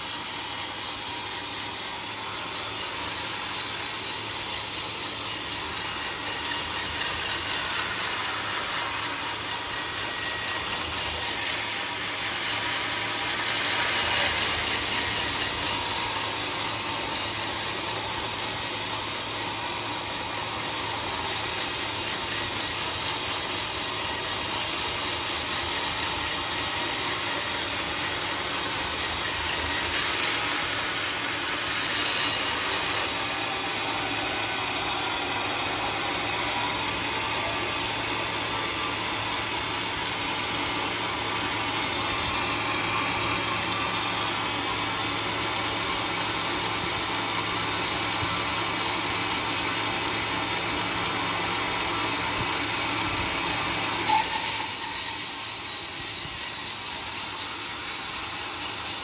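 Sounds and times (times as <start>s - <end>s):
bandsaw cutting a log: 0.0s - 59.0s.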